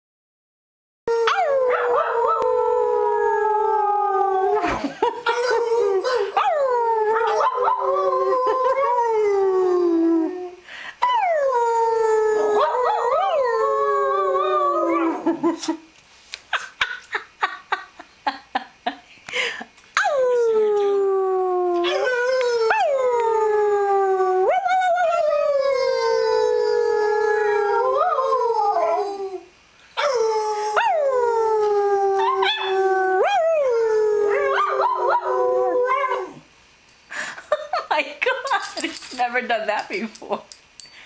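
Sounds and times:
dog howling: 1.2 - 4.6.

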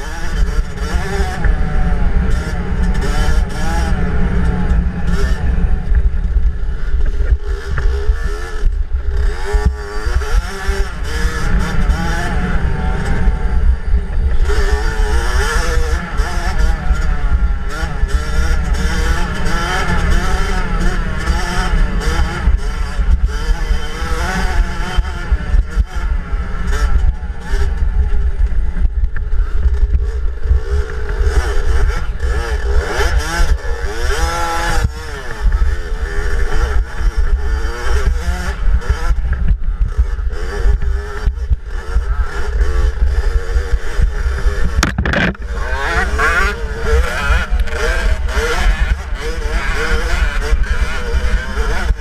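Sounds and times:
dirt bike engine revving: 0.0 - 52.0
wind rumble on microphone: 0.0 - 52.0
bumps on microphone: 44.8 - 45.5.

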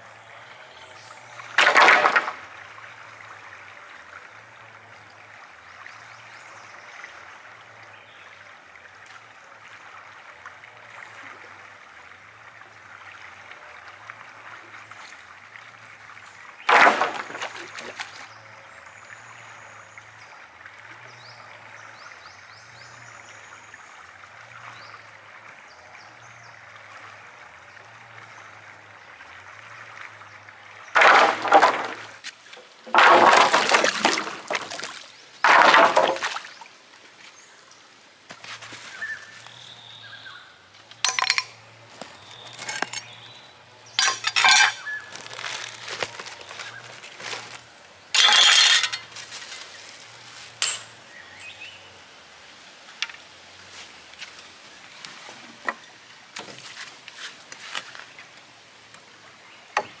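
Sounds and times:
wood and branches breaking: 1.6 - 2.4, 16.7 - 18.2, 31.0 - 32.2, 32.9 - 36.4, 44.0 - 47.6.

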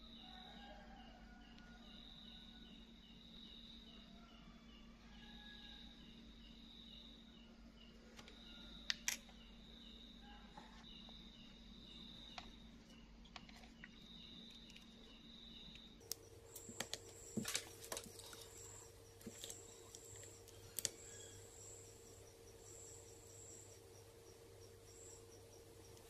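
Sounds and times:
faint high-pitched chirping tones: 0.0 - 26.0
small clicks and taps: 15.7 - 18.5, 19.2 - 21.0.

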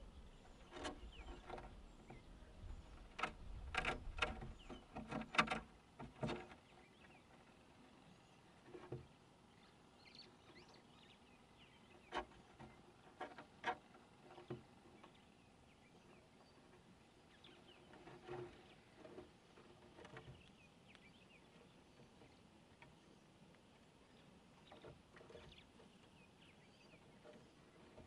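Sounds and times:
bird chirps and trills: 0.1 - 3.2, 4.4 - 5.0, 24.0 - 28.0.

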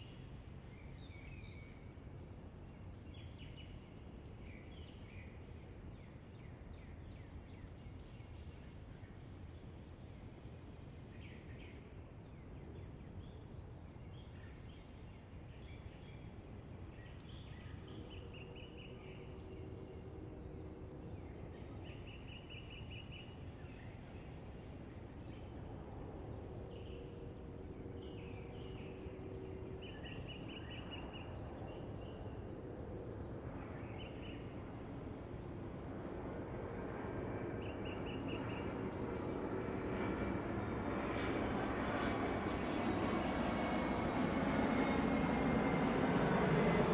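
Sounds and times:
faint steady drone: 0.0 - 46.9
small birds chirping and trilling: 35.9 - 46.9.

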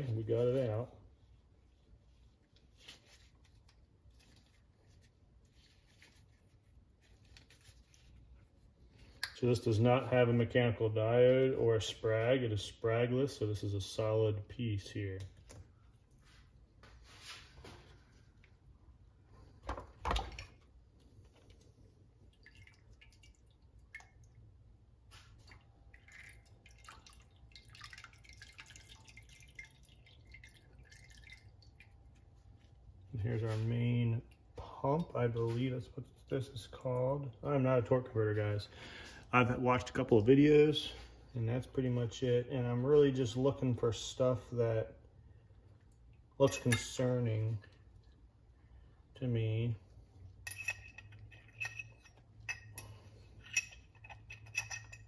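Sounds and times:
fluid dripping and trickling: 20.0 - 35.1, 47.6 - 48.8.

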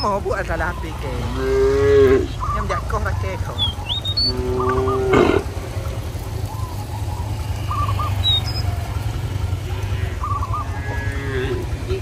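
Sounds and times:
small birds chirping: 0.0 - 12.0
cow mooing: 0.7 - 2.6, 4.0 - 5.8, 9.5 - 11.8.

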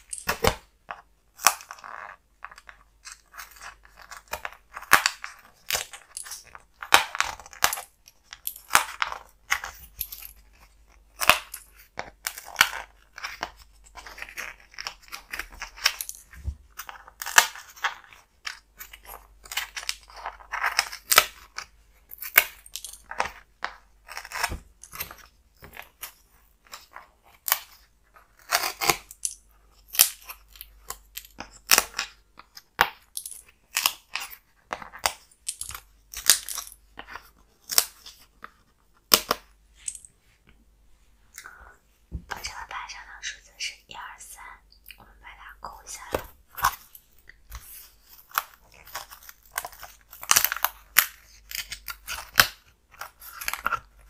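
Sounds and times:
puzzle pieces popping out: 0.0 - 0.7, 39.0 - 40.2.

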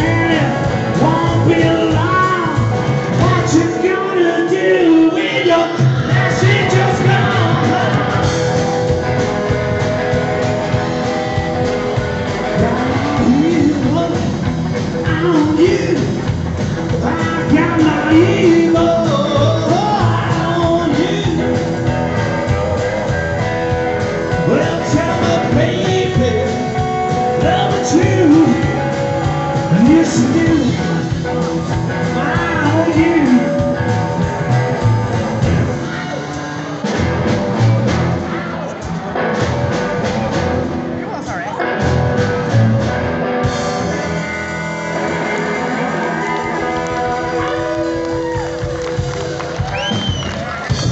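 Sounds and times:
man singing: 0.0 - 8.7, 12.2 - 23.2, 24.2 - 36.9
rockabilly band playing live: 0.0 - 50.9.

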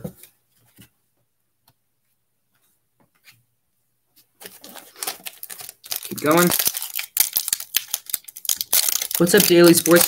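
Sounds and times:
trading cards being handled: 4.4 - 10.0.

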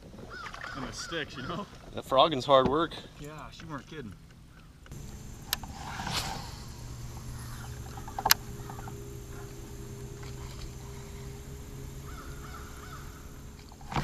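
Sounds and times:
bird call: 4.9 - 14.0
faint low hum: 4.9 - 14.0.

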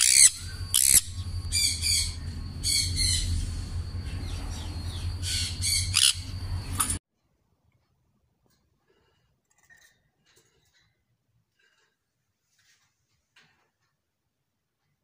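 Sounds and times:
parrots screeching: 0.0 - 3.6, 4.7 - 7.0
steady low hum: 0.0 - 7.0.

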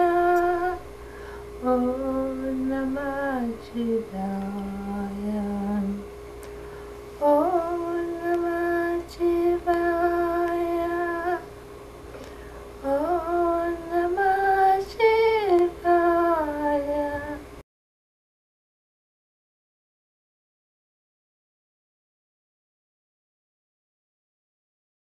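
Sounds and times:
woman chanting: 0.0 - 0.9, 1.6 - 6.1, 7.2 - 11.5, 12.8 - 17.5
faint steady tone: 0.0 - 17.6.

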